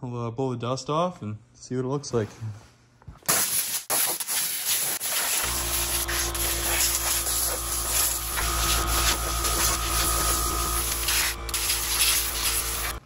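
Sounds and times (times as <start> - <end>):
compressed air hissing: 3.3 - 13.0.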